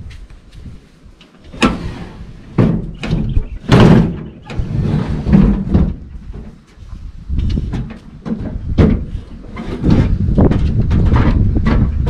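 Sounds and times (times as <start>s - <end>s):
boat hull scraping on rack: 1.5s - 6.5s, 8.4s - 12.0s.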